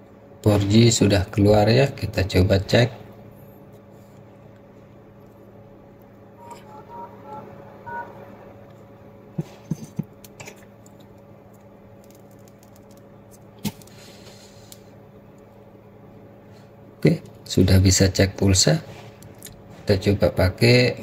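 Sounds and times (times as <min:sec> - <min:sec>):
keypad beeps: 0:06.4 - 0:08.2.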